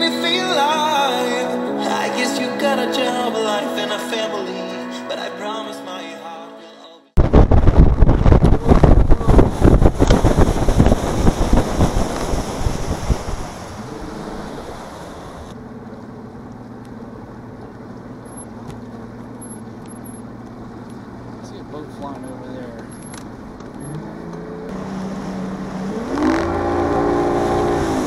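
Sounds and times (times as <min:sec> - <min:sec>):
wind buffeting microphone: 0:07.2 - 0:15.6
outboard motor hum: 0:07.2 - 0:28.0.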